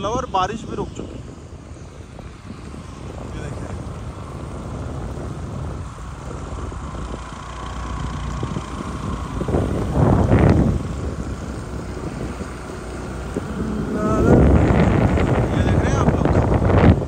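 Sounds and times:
vehicle engine and road rumble: 0.0 - 17.0
wind on microphone: 0.0 - 17.0
rushing swell: 5.8 - 16.1.

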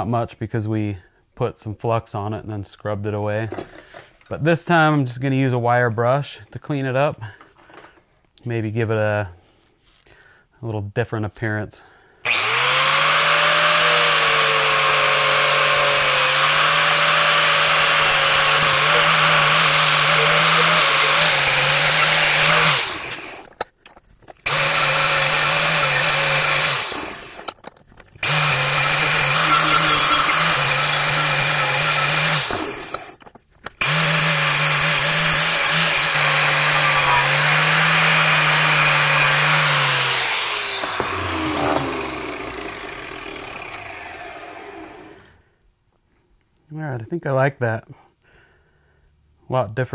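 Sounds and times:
wire brush grinder on steel: 12.3 - 23.5, 24.5 - 27.5, 28.2 - 33.2, 33.8 - 45.4.

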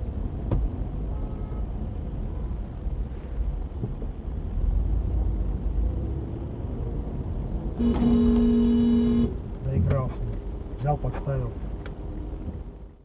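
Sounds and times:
car engine and road noise: 0.0 - 13.0
car horn honking: 7.8 - 9.4.

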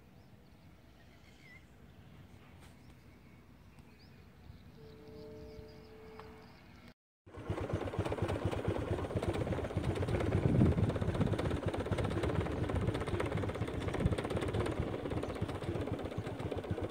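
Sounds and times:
engine idling: 7.3 - 16.9.

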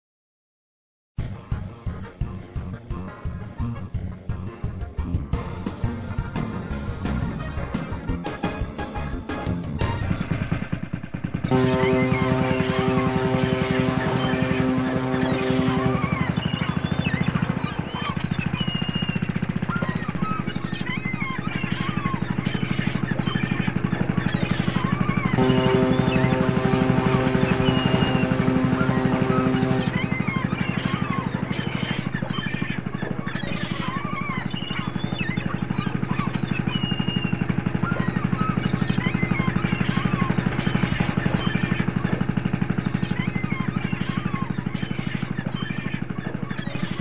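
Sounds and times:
diesel engine pulsing: 2.4 - 47.0.

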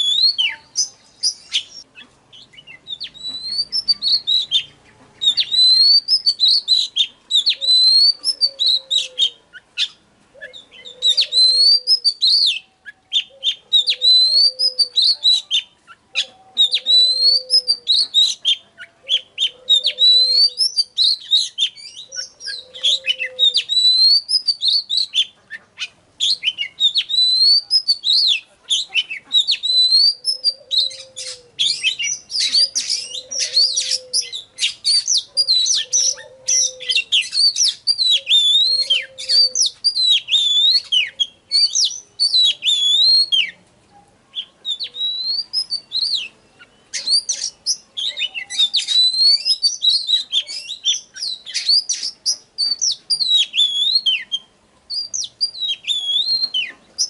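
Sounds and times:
bird singing whistled song: 0.0 - 43.6, 44.3 - 57.0
softer lower bird call: 0.0 - 43.6.

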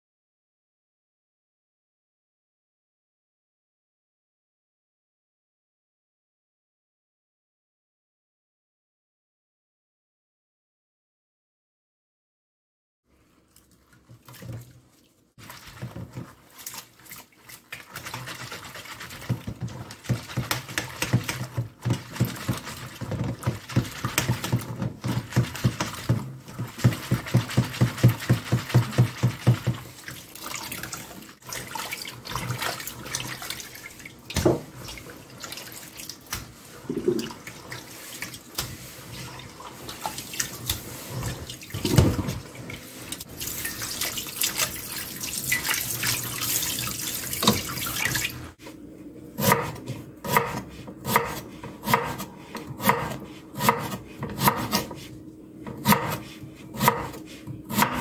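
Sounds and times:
water sloshing and splashing: 13.4 - 48.7.

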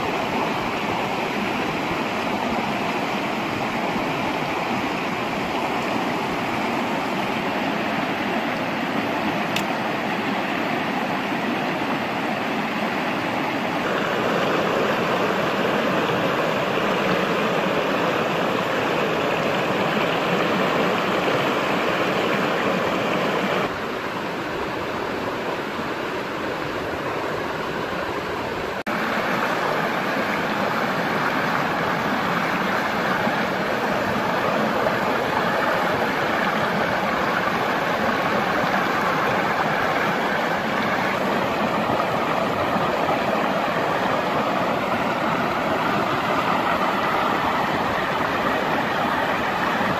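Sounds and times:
stream rushing over rocks: 0.0 - 49.9.

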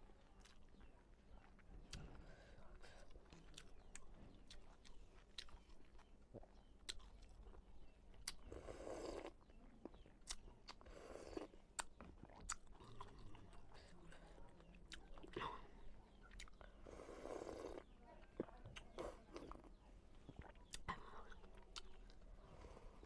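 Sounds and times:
chewing with mouth clicks: 0.0 - 23.0
slurping soup: 8.3 - 9.5, 10.7 - 11.6, 16.8 - 18.0.

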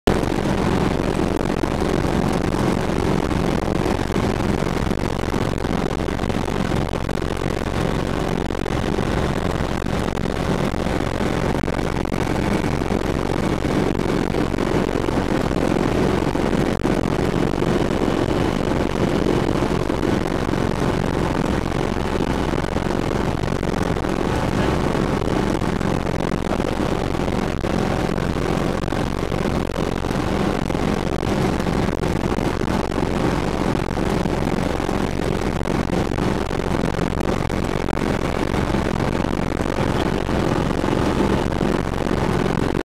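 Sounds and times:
helicopter engine and rotors: 23.8 - 25.8.

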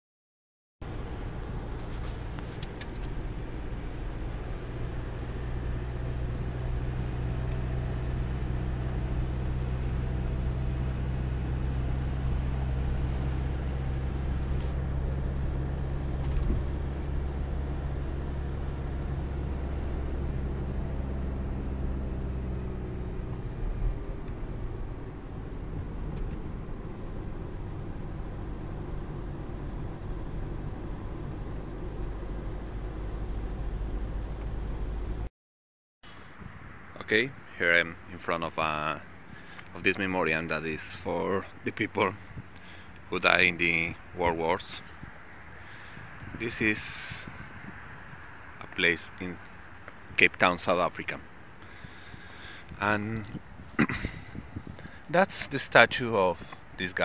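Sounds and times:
car engine and road noise: 0.8 - 35.3, 36.0 - 57.0.

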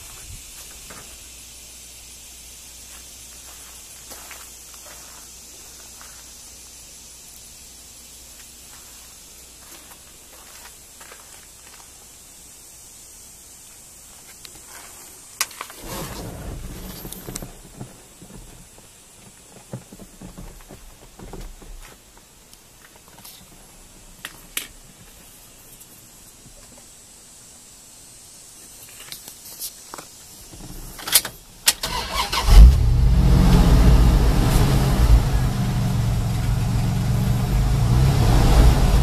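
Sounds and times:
steady hiss: 0.0 - 39.0
rumbling and rubbing: 14.7 - 18.9.

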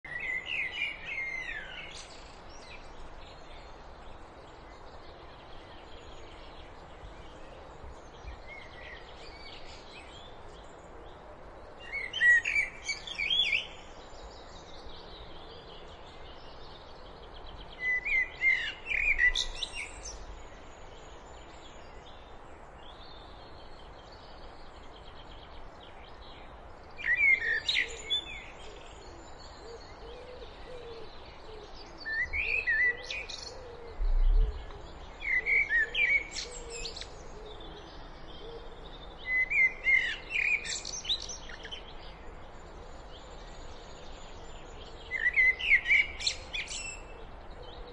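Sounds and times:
blackbird singing: 0.0 - 3.7, 11.8 - 20.3, 26.1 - 47.9
faint steady background noise: 0.0 - 47.9.

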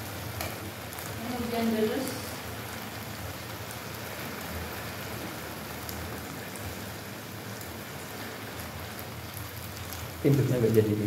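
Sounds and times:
shrimp sizzling in a pan: 0.0 - 11.0.

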